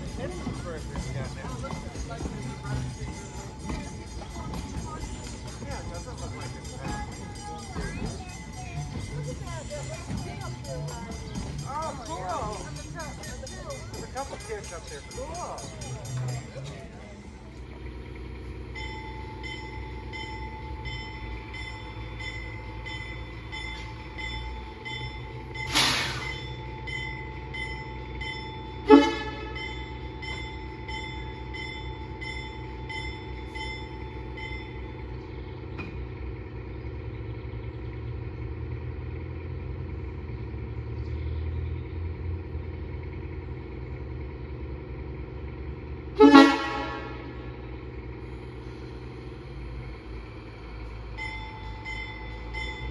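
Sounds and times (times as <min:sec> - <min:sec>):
train bell clanging: 0:00.0 - 0:17.0, 0:17.8 - 0:36.4, 0:49.9 - 0:52.9
low engine rumble: 0:00.0 - 0:52.9
locomotive horn: 0:25.6 - 0:26.6, 0:28.6 - 0:30.1, 0:46.0 - 0:47.7.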